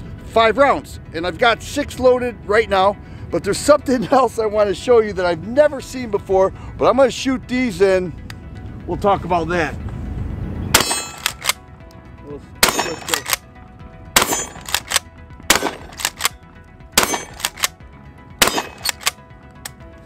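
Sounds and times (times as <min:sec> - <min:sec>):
shotgun shots: 0:10.7 - 0:11.6, 0:12.6 - 0:13.4, 0:14.2 - 0:16.4, 0:17.0 - 0:17.8, 0:18.4 - 0:19.2.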